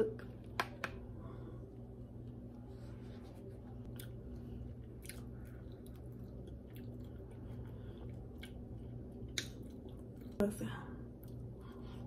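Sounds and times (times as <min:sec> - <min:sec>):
steady low hum: 0:00.0 - 0:12.0
person chewing: 0:03.8 - 0:10.4, 0:11.1 - 0:12.0.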